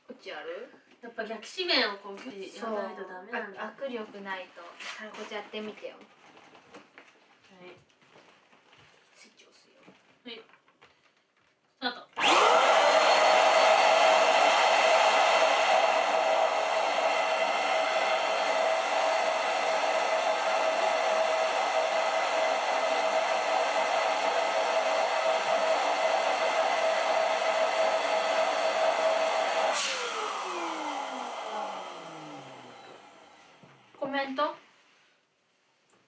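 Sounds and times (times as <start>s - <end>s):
electric air pump whining: 12.2s - 33.8s.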